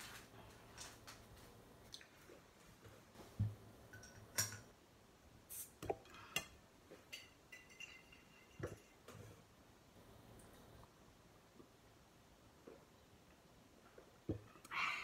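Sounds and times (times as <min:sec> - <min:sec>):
glass bottle and tableware clinking: 0:07.1 - 0:09.0.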